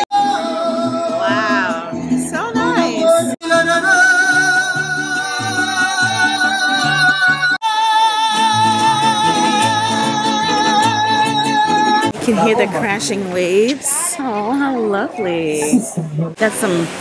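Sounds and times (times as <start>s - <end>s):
mariachi band playing: 0.0s - 16.4s.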